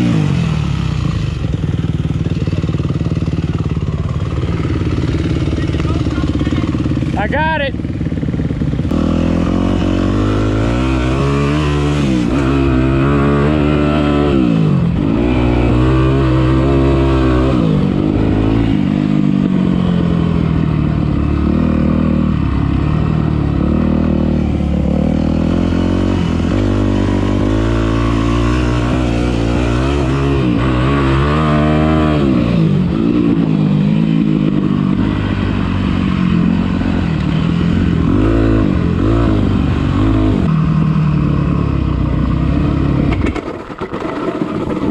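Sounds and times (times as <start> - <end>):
dirt bike engine revving: 0.0 - 43.4.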